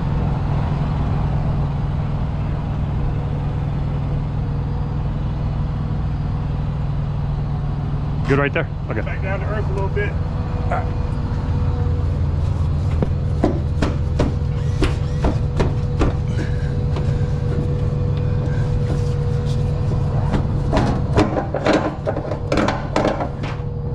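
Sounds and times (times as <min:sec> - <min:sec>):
idling engine hum: 0:00.0 - 0:23.9
rustling and scraping: 0:11.0 - 0:23.8.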